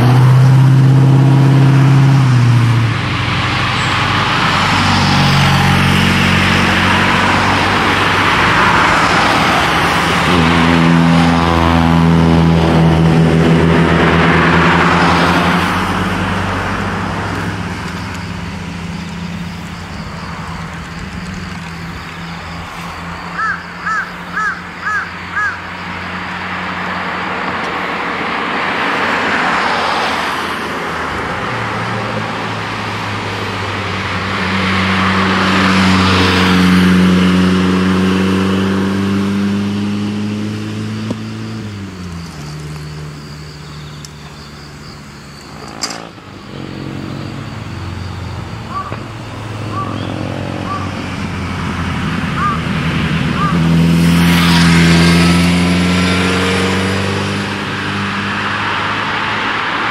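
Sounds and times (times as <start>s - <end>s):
sports car engines passing: 0.0s - 59.9s
crow cawing: 23.4s - 25.8s, 48.7s - 49.0s, 49.7s - 51.0s, 52.4s - 52.7s, 53.4s - 53.7s.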